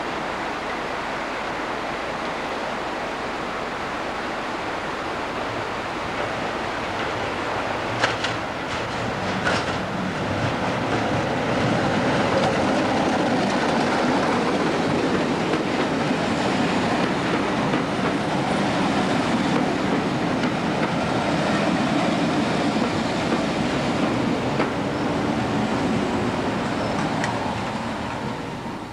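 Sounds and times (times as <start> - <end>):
wheels clicking over rail joints: 7.9 - 18.6, 19.3 - 25.0.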